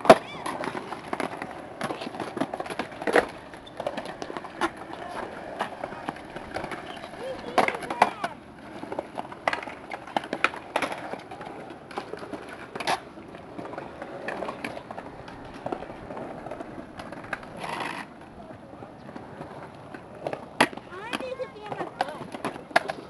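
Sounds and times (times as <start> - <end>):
skateboard clacks: 0.0 - 23.0
skateboard wheels rolling on concrete: 0.0 - 23.0.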